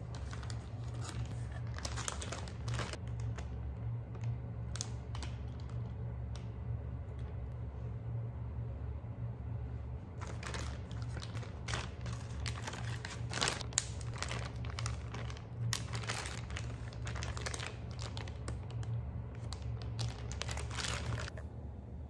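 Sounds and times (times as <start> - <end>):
plastic bags crinkling: 0.0 - 6.0, 10.2 - 21.4
low hum: 0.0 - 22.0.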